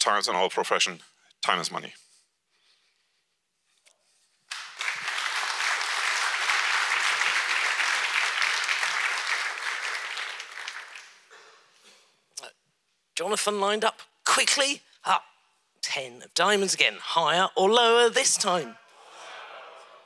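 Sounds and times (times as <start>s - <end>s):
audience applause: 4.5s - 11.3s.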